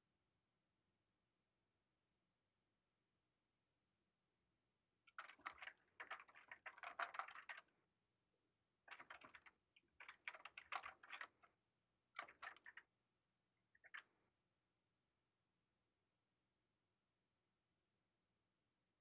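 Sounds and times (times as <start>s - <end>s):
computer keyboard typing: 5.1s - 7.7s, 8.9s - 11.5s, 12.2s - 12.8s, 13.8s - 14.1s.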